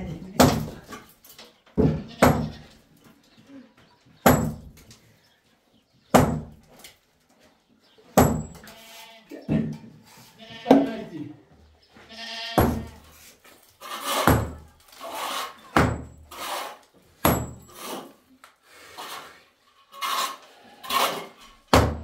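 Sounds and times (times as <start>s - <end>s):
sledgehammer thuds on wall: 12.6s - 13.0s, 17.2s - 17.7s, 21.7s - 22.0s.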